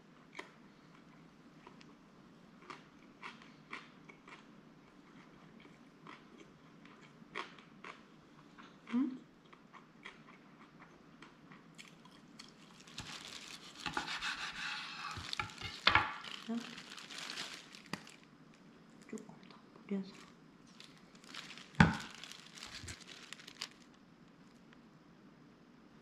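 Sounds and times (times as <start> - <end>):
faint chewing: 0.3 - 2.0, 2.6 - 23.9
dried seaweed crackling: 12.4 - 18.6, 20.1 - 24.0
knife sawing through food: 13.6 - 15.7.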